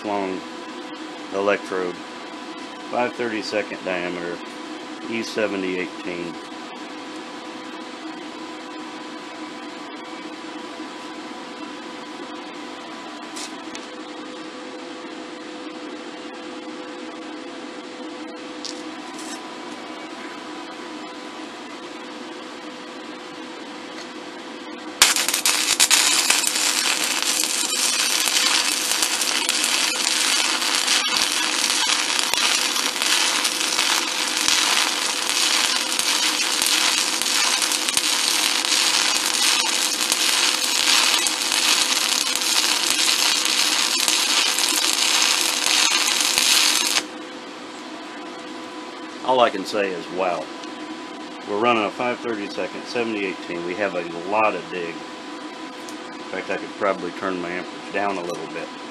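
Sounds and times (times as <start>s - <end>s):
electrical hum: 0.0s - 58.9s
welding arc sizzling and crackling: 25.0s - 47.1s.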